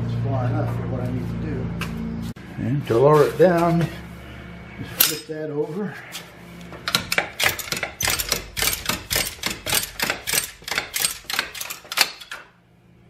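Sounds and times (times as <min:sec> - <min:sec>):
ratchet clicking rapidly: 0:06.9 - 0:12.4.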